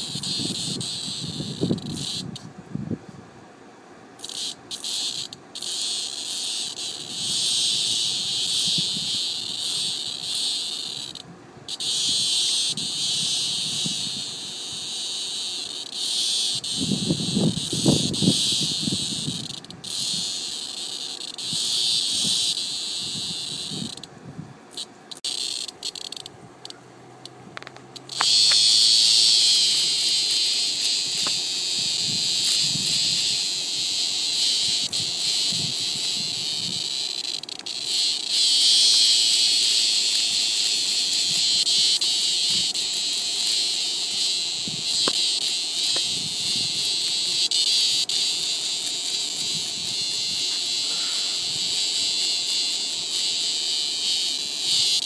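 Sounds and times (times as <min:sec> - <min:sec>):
cicada distress buzz: 0:00.0 - 0:02.9, 0:04.1 - 0:55.0.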